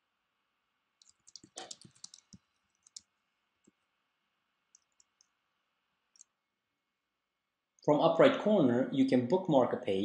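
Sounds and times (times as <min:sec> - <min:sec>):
keyboard keys clicking: 0:01.0 - 0:03.1.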